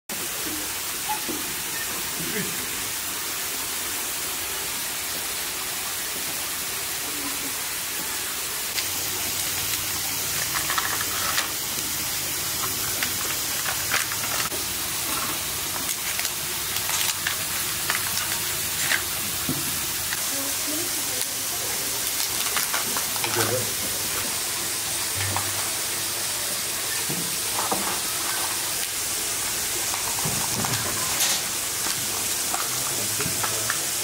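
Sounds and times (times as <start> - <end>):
steady hiss: 0.1 - 34.0
spoon scraping plastic cups: 10.3 - 11.6.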